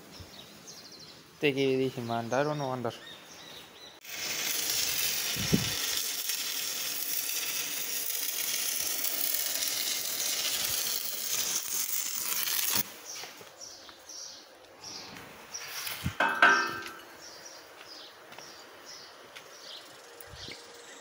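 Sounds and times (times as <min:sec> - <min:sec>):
arc welding crackling sizzle: 0:04.0 - 0:14.0, 0:15.3 - 0:17.8.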